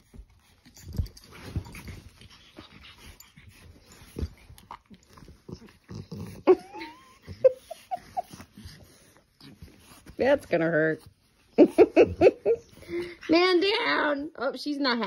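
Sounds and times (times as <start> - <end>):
dogs huffing and scuffling: 0.0 - 14.1
dog whining: 5.5 - 8.9.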